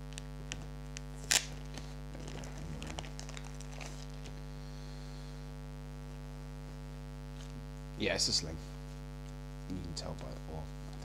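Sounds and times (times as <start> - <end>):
electrical mains hum: 0.0 - 11.0
plastic packet tearing: 0.1 - 4.4
plastic rustling and clicks: 0.1 - 4.4.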